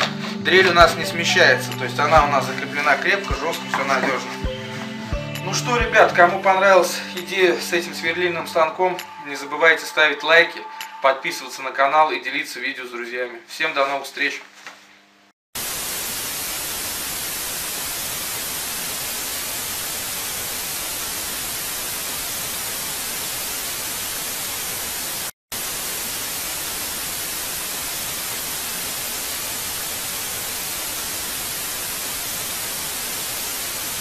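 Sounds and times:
tv static hiss: 0:15.6 - 0:34.0.

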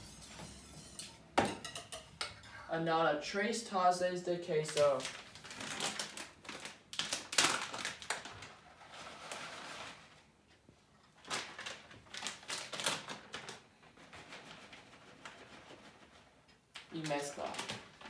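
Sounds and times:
plastic bag crinkling: 0:04.6 - 0:10.2, 0:11.1 - 0:15.7, 0:16.8 - 0:18.0.

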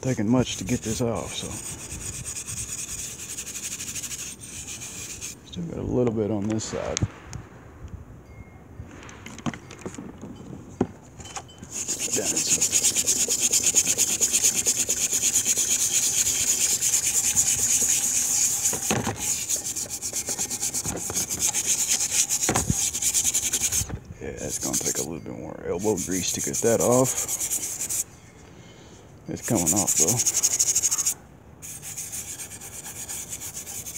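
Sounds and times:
wire brush scrubbing metal: 0:00.0 - 0:05.4, 0:11.7 - 0:25.1, 0:25.7 - 0:28.1, 0:29.4 - 0:33.9.

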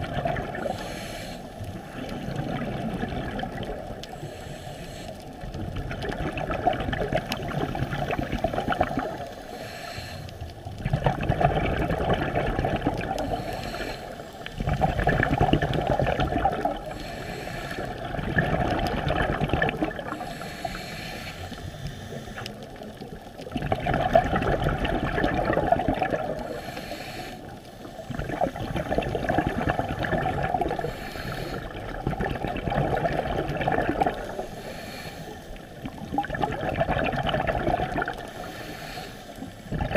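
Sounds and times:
air bubbling underwater: 0:00.0 - 0:00.7, 0:01.9 - 0:04.0, 0:05.7 - 0:09.3, 0:10.8 - 0:13.3, 0:14.6 - 0:16.9, 0:18.0 - 0:20.2, 0:23.5 - 0:26.6, 0:28.1 - 0:30.9, 0:31.6 - 0:34.4, 0:35.8 - 0:38.3.

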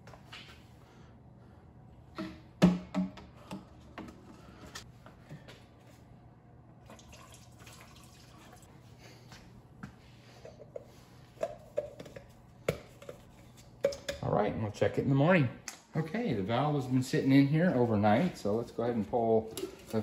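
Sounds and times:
liquid pouring and splashing: 0:06.8 - 0:08.7.

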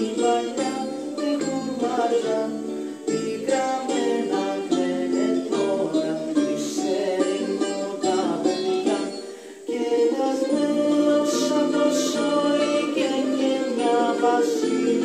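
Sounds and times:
person singing: 0:00.0 - 0:15.0
plucked string instrument: 0:00.0 - 0:15.0.

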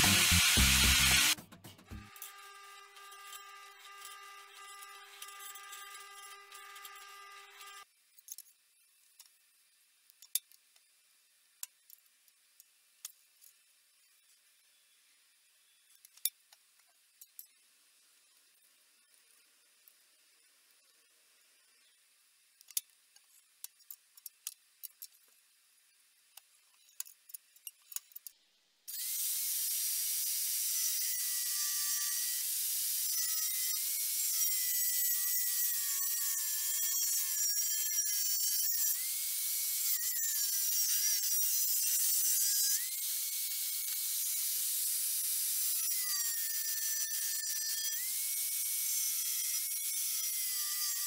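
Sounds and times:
angle grinder cutting steel: 0:00.0 - 0:07.9, 0:28.9 - 0:51.0.

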